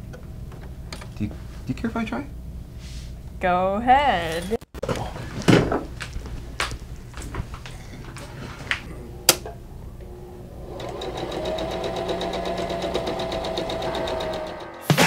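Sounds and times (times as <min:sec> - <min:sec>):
knocks and clicks: 0:08.8 - 0:10.1
sewing machine stitching: 0:10.6 - 0:14.8.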